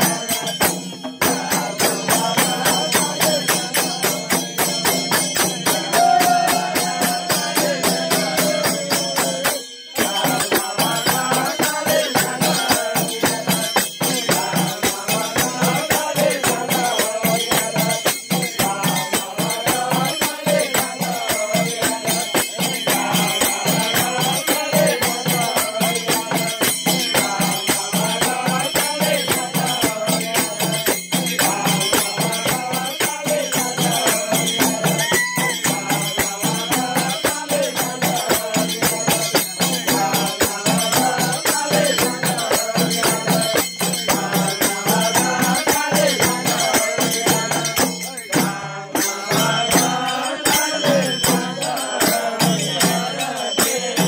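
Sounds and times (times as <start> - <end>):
frame drums beating: 0.0 - 54.0
group chanting a melody: 0.0 - 54.0.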